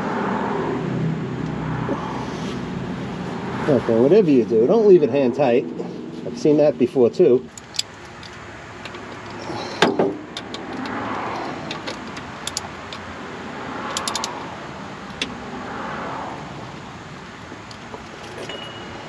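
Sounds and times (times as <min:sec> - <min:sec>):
ratchet wrench clicking: 0:07.5 - 0:09.4, 0:10.4 - 0:13.1, 0:13.8 - 0:14.4.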